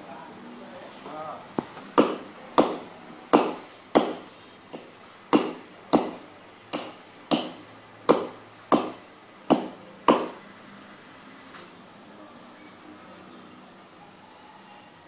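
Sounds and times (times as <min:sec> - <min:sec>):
chopping into palm trunk: 0:02.0 - 0:06.2, 0:06.8 - 0:10.4.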